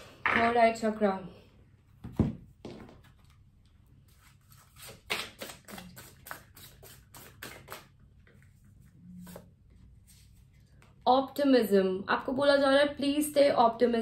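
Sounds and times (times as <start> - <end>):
cards being shuffled: 4.1 - 8.6.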